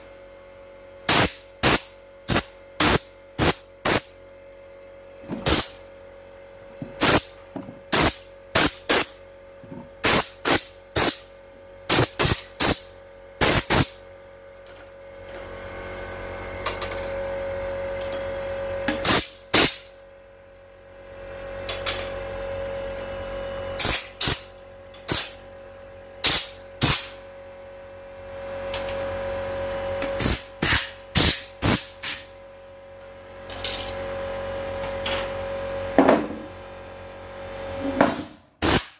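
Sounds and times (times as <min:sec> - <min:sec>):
steady hum: 0:00.0 - 0:38.9
short sharp spray blasts: 0:01.1 - 0:04.1, 0:05.4 - 0:05.7, 0:10.0 - 0:11.2, 0:11.9 - 0:14.0, 0:23.8 - 0:24.5, 0:26.2 - 0:27.1, 0:30.2 - 0:32.3, 0:38.1 - 0:38.9.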